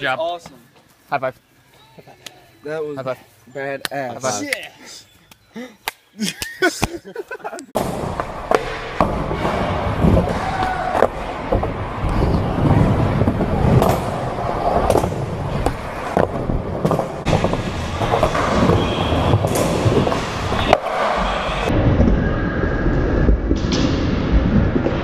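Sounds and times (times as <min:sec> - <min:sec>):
skateboard wheels rumbling: 0:07.8 - 0:25.0.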